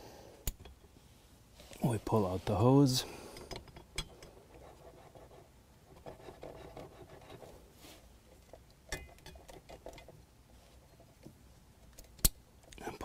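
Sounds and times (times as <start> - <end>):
rubbing and handling noises: 0.8 - 3.0, 3.6 - 11.6.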